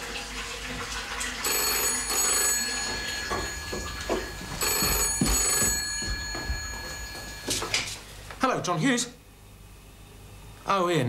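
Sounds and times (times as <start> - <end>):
telephone bell ringing: 1.4 - 8.0.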